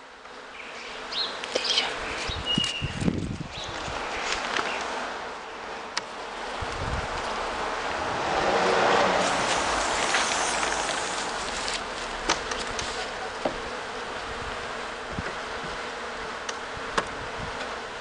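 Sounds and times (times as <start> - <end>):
honeybees buzzing: 0.0 - 18.0
wooden hive frames knocking: 12.1 - 13.8, 16.4 - 17.8.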